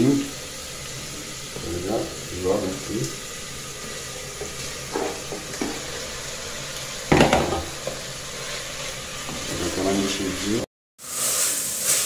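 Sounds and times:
chicken sizzling in hot oil: 0.0s - 12.0s
spoon scraping against pot: 4.4s - 6.2s.

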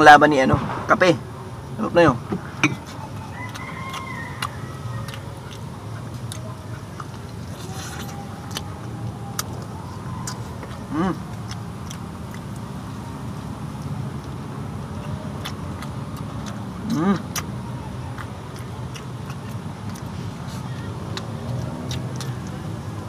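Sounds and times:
chewing and lip smacks: 2.6s - 23.0s
rooster crowing: 3.2s - 5.6s.

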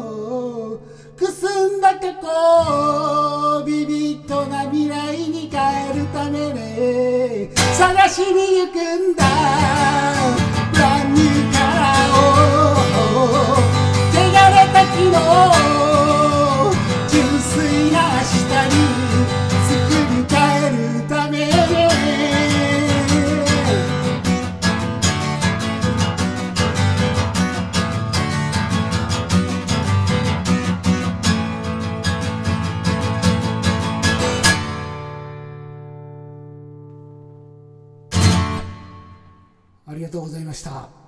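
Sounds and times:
man singing: 0.0s - 24.4s
strummed acoustic guitar: 0.0s - 39.7s.

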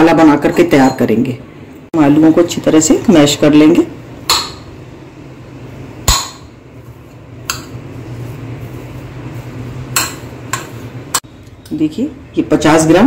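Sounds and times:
spoon clinking on bowl: 0.4s - 1.2s
spoon mashing potatoes in bowl: 6.8s - 11.2s.

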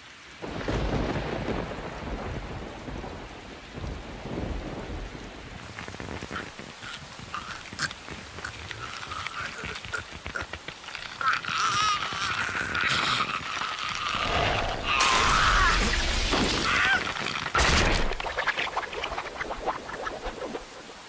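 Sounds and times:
crunching breaking sound effects: 13.8s - 20.2s
man screaming in agony: 14.7s - 17.2s.

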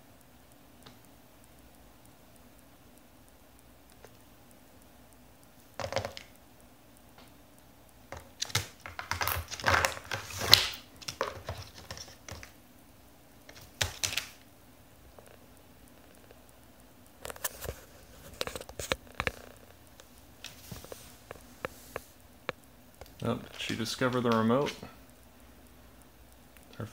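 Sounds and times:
beak tapping on cardboard: 8.1s - 12.5s.

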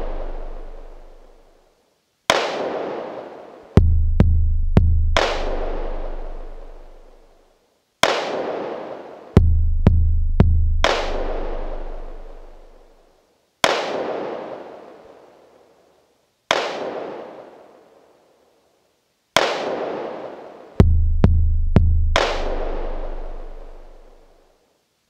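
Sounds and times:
booming bass hits: 3.8s - 6.3s, 9.4s - 12.3s, 20.8s - 23.6s.

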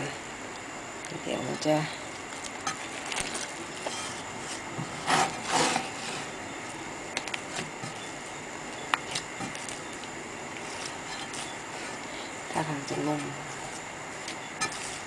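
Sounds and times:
dough scraping against glass bowl: 3.7s - 6.4s, 10.6s - 12.0s, 13.0s - 15.0s.

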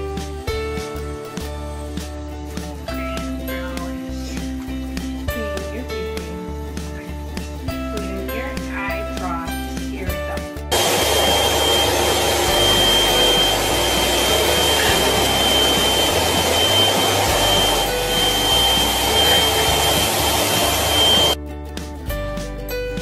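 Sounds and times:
vacuum cleaner running: 10.7s - 21.4s.

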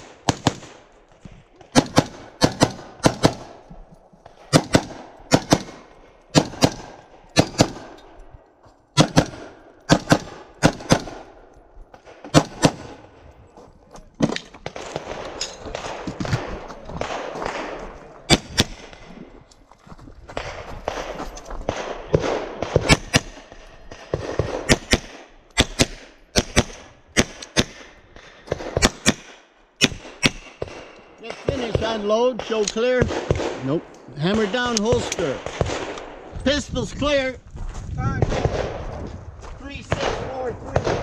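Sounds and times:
pistol shots: 0.0s - 0.9s, 1.6s - 3.6s, 4.4s - 8.2s, 8.9s - 13.2s, 14.2s - 19.1s, 20.4s - 36.3s, 38.2s - 38.9s, 39.9s - 41.0s
rifle fired rapidly: 0.0s - 0.9s, 1.6s - 3.6s, 4.4s - 8.0s, 9.0s - 11.4s, 12.0s - 13.2s, 14.6s - 19.1s, 20.4s - 36.3s, 38.2s - 38.8s, 39.9s - 41.0s.

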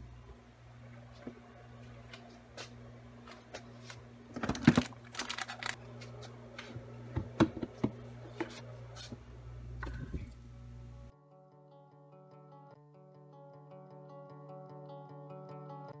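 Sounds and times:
steady low hum: 0.0s - 11.1s
plastic containers clattering: 4.3s - 5.8s.

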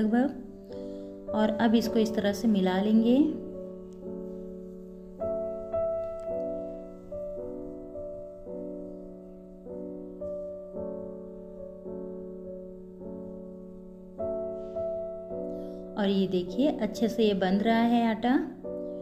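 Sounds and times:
gentle piano music: 0.0s - 19.0s.

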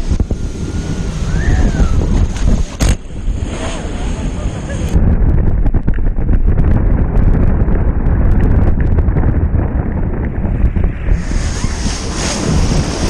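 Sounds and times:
water rushing: 0.0s - 5.0s
boat engine: 0.0s - 5.8s, 10.2s - 13.0s
wind buffeting microphone: 0.0s - 13.0s.

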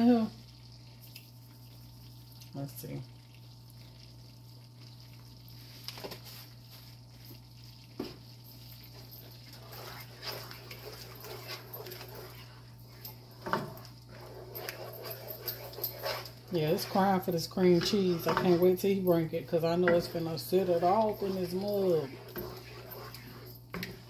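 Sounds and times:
wooden spoon stirring sauce: 3.4s - 24.0s
steady hum: 7.2s - 24.0s.

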